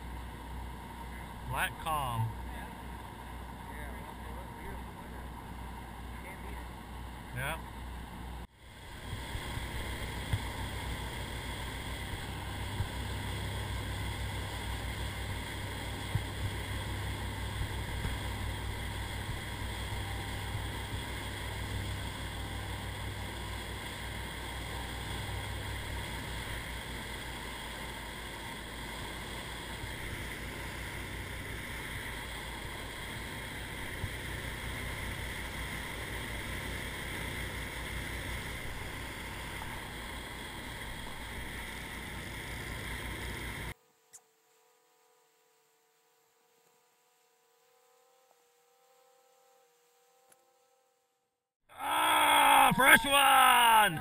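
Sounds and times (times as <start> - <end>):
boat engines droning: 0.0 - 43.8
water rushing along hull: 8.2 - 43.8.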